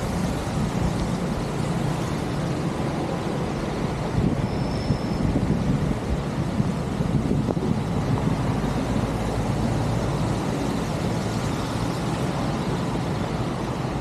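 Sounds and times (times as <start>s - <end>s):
rain falling on water: 0.0s - 4.4s, 5.2s - 14.0s
wind rumble on microphone: 3.4s - 14.0s.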